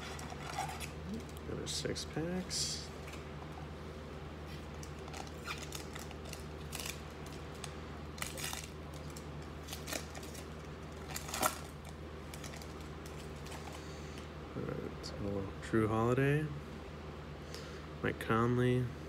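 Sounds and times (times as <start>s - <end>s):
foil wrapper tearing and crinkling: 0.0s - 1.0s, 4.9s - 13.6s
steady low hum: 0.0s - 19.0s.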